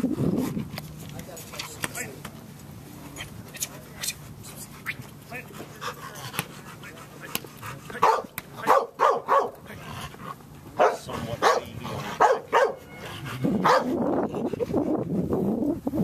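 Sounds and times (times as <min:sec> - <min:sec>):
dog barking: 0:08.0 - 0:09.6, 0:10.8 - 0:12.9, 0:13.6 - 0:14.0.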